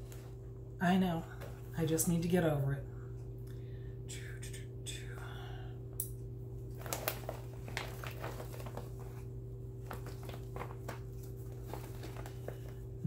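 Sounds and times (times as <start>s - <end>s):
steady low hum: 0.0s - 13.0s
materials rustling: 6.7s - 13.0s.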